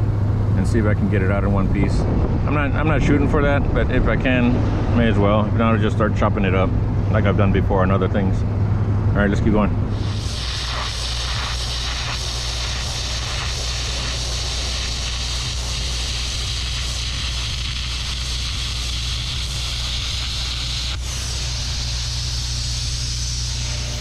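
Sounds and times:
low hum: 0:00.0 - 0:24.0
arc gouging hiss and crackle: 0:09.4 - 0:24.0.

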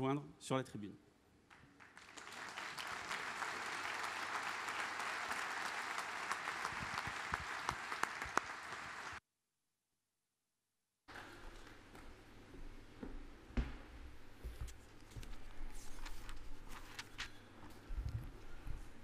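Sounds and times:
audience applauding: 0:01.5 - 0:09.2.

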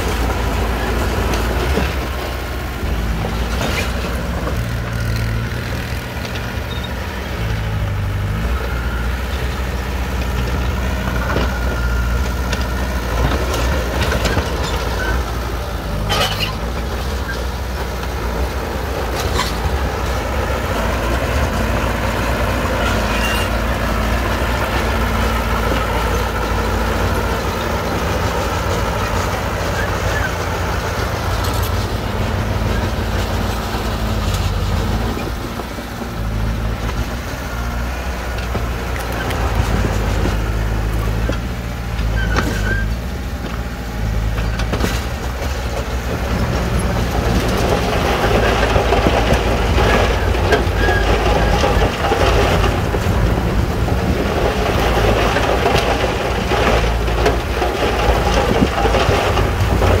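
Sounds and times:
blade and tracks scraping rock: 0:00.0 - 1:00.0
bulldozer diesel engine droning: 0:00.0 - 1:00.0.

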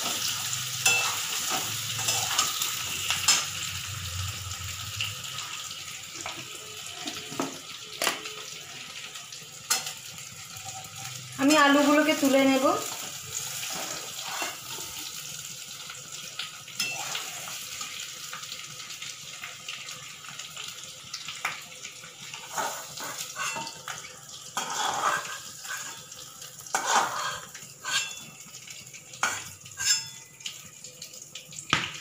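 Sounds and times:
spatula scraping metal pan: 0:00.0 - 0:03.4, 0:13.4 - 0:15.0, 0:16.8 - 0:17.6, 0:22.4 - 0:23.8, 0:24.6 - 0:26.1, 0:26.7 - 0:28.3, 0:29.2 - 0:30.2
potatoes sizzling in oil: 0:00.0 - 0:32.0.

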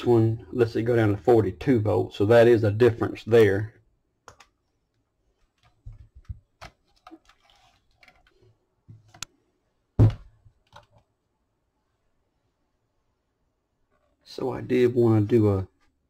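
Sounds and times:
battery pack thump: 0:10.0 - 0:10.3.

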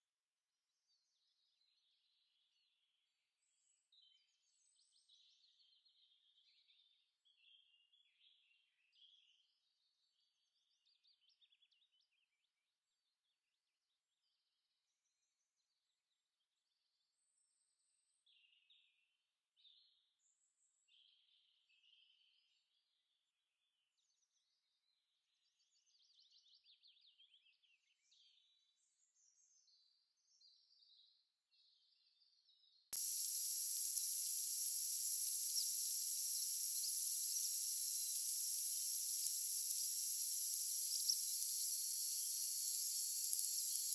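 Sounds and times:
faint bird chirps: 0:00.9 - 0:12.6, 0:24.0 - 0:43.9
loud high-pitched hiss: 0:33.0 - 0:43.9.

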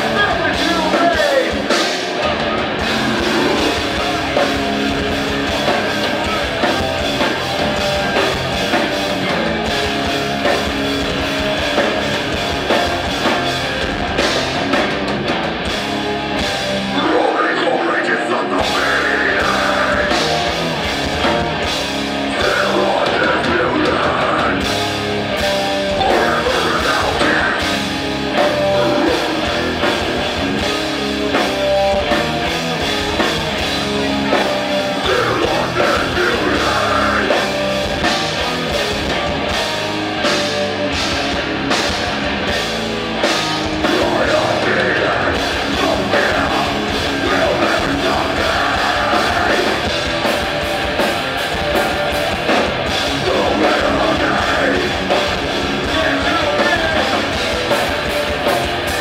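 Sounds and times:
person singing or shouting: 0:00.0 - 0:04.4, 0:16.9 - 0:20.4, 0:22.3 - 0:24.7, 0:25.8 - 0:27.8, 0:28.4 - 0:30.0, 0:33.8 - 0:37.6, 0:43.8 - 0:50.0, 0:53.1 - 0:57.5
drum kit: 0:00.0 - 0:17.2, 0:18.5 - 0:59.0
electric guitar: 0:00.0 - 0:59.0.

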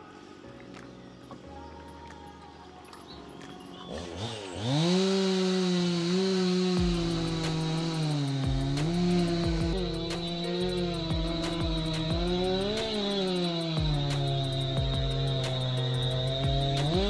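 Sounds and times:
small engine revving: 0:03.8 - 0:17.0.

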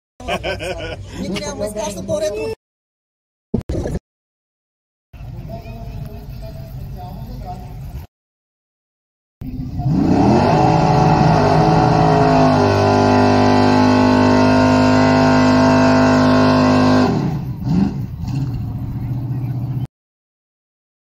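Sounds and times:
car engine revving: 0:09.4 - 0:19.9.

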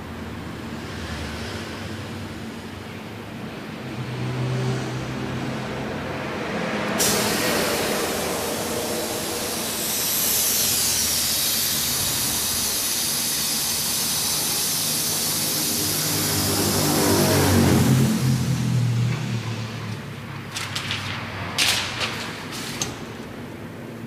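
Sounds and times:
heat press hissing: 0:07.0 - 0:17.3.

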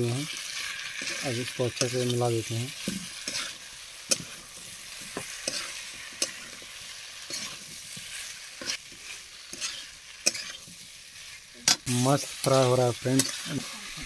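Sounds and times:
food sizzling in oil: 0:00.0 - 0:14.0
metal spatula scraping pan: 0:02.8 - 0:11.8.

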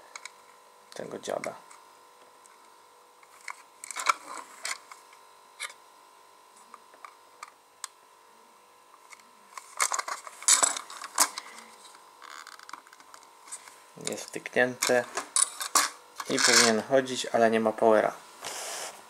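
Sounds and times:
plastic parts clicking and rattling: 0:09.6 - 0:11.5.

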